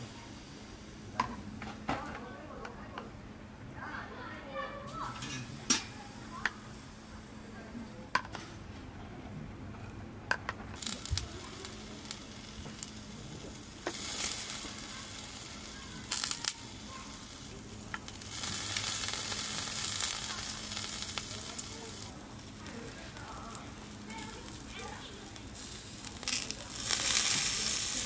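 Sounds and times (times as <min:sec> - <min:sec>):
meat sizzling on a grill: 0:00.0 - 0:02.8, 0:04.9 - 0:08.3, 0:10.4 - 0:28.0
utensils clicking against dishes: 0:05.1 - 0:06.6.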